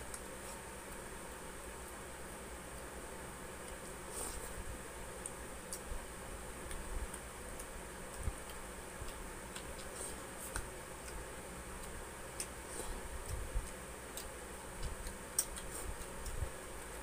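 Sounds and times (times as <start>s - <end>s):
steady low hum: 0.0s - 17.0s
chewing clicks and smacks: 6.6s - 17.0s.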